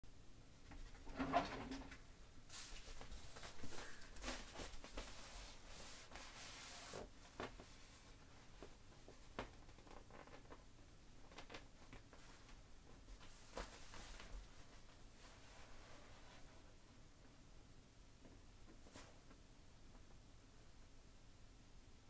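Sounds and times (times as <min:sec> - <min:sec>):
vinyl rubbing and creaking: 0:08.6 - 0:16.6.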